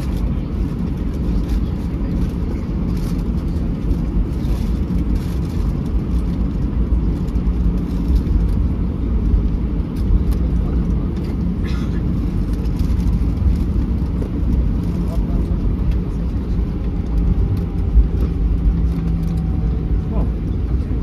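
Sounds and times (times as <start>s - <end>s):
jet engines idling: 0.0s - 21.0s.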